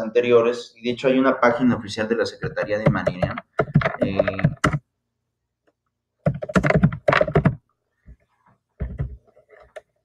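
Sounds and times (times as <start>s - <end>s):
computer keyboard typing: 2.4s - 4.8s, 6.2s - 7.6s.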